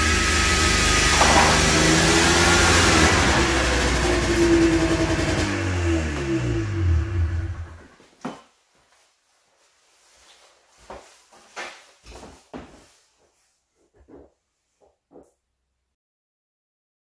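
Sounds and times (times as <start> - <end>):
snowmobile engine shutting off: 0.0 - 7.8
thumps and knocks of footsteps: 7.8 - 9.0, 10.3 - 15.4.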